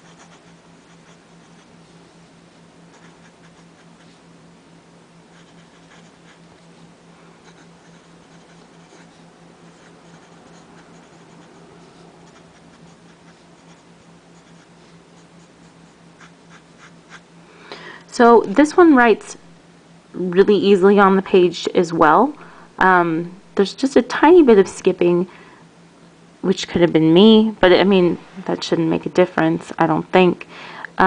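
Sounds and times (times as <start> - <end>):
pen nib scratching paper: 0.0 - 1.7, 5.4 - 6.4, 7.4 - 17.2
steady low hum: 0.0 - 31.0.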